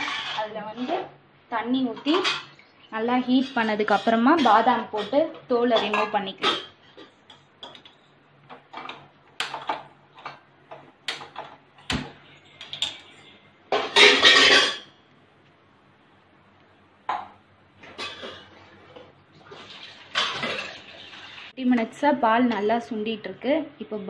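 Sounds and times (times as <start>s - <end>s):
steel pans clinking: 13.7s - 14.9s.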